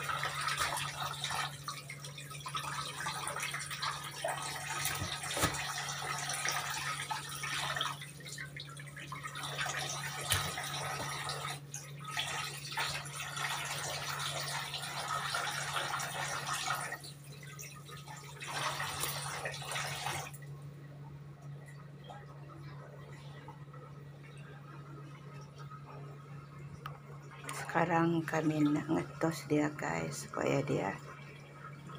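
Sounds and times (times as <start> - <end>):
tap water splashing into sink: 0.0 - 20.4
low steady hum: 0.0 - 31.9.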